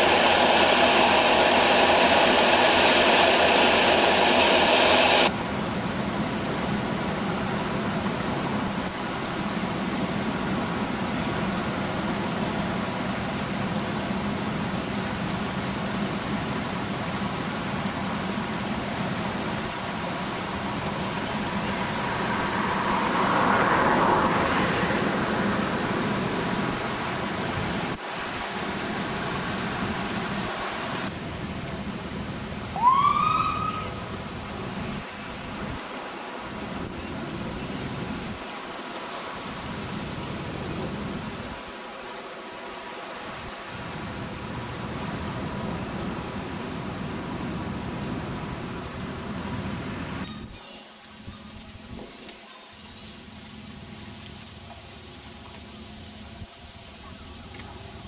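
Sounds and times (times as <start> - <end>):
outdoor air noise: 0.0 - 58.0
rushing floodwater: 0.0 - 58.0.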